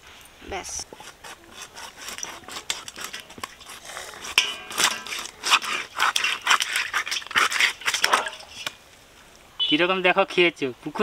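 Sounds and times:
blade crunching through fish bone: 0:01.0 - 0:08.7.

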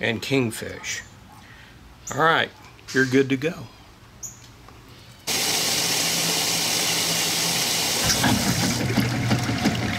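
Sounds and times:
water rushing into washing machine: 0:05.3 - 0:09.9.

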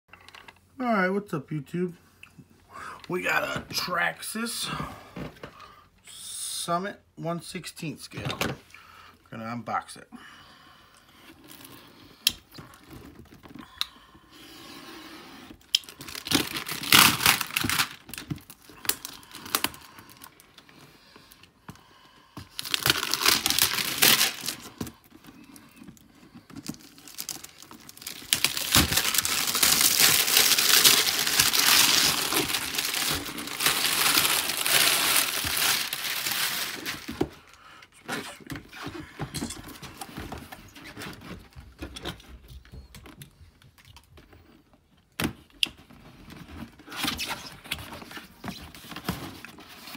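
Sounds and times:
packaging crinkling and tearing: 0:15.5 - 0:20.8, 0:22.4 - 0:37.6.

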